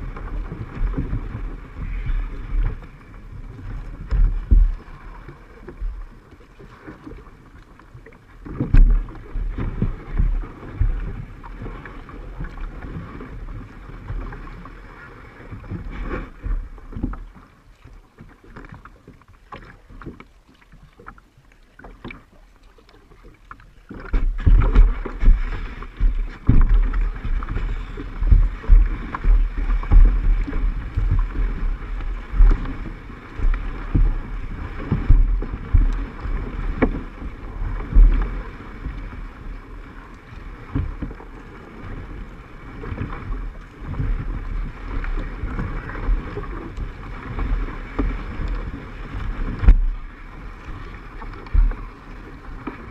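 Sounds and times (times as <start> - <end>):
paddle knocking against hull: 0.0 - 7.2, 8.2 - 22.4, 23.1 - 52.9
water splashing under paddle strokes: 0.0 - 52.9
wind buffeting microphone: 24.2 - 39.2.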